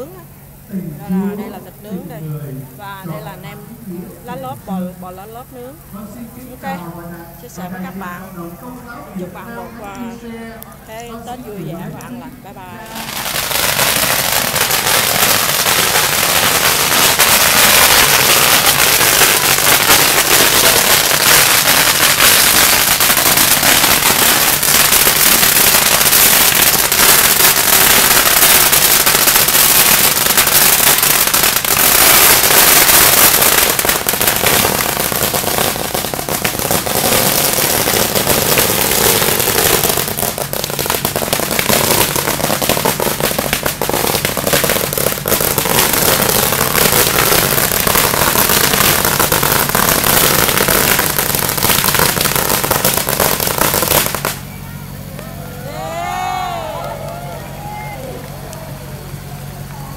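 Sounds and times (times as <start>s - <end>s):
firecrackers crackling: 0.0s - 59.9s.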